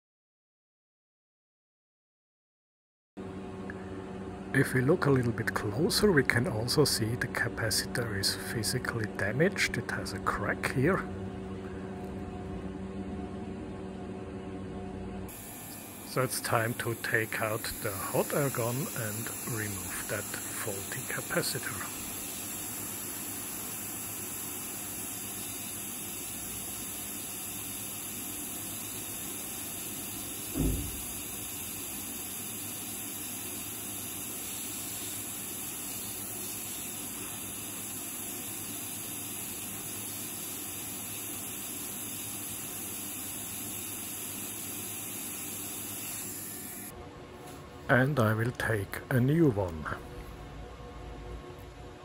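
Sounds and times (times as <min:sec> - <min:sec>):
hot air gun hissing: 0:15.3 - 0:47.0
low thump: 0:30.6 - 0:31.0.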